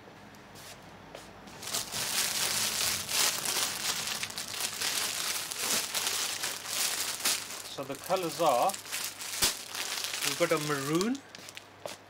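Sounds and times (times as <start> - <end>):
plastic wrapping crinkling: 1.5 - 12.0.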